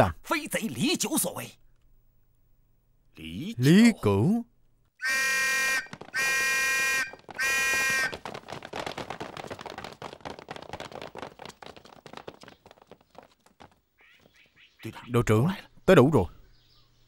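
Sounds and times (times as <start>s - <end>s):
electric alarm buzzer: 5.0s - 8.1s
hurried footsteps clattering: 5.7s - 14.6s.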